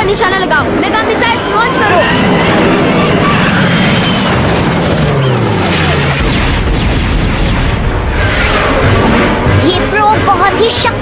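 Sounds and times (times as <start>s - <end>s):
low rumble: 0.6s - 11.0s
falling zapping tones: 1.9s - 9.0s
cartoon booms and blasts: 2.3s - 9.6s.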